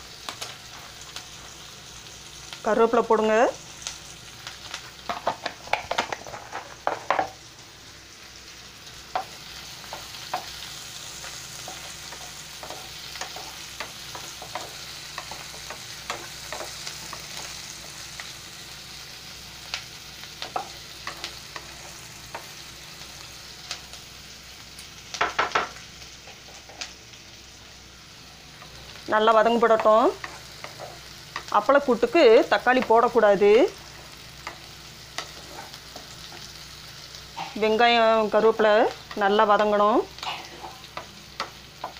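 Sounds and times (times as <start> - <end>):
onions sizzling in hot oil: 0.0 - 41.9
spatula scraping a pan: 29.8 - 31.2, 33.8 - 36.5, 40.2 - 41.1.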